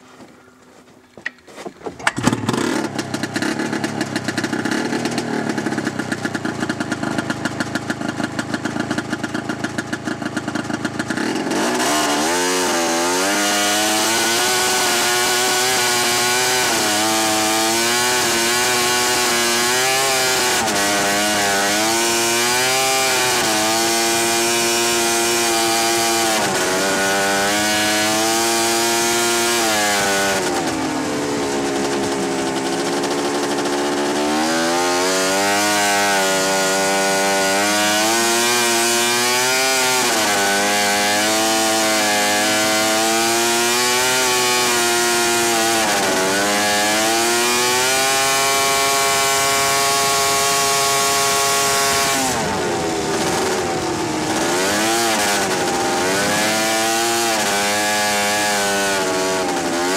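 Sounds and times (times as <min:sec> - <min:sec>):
snowmobile engine: 0:01.6 - 0:59.9.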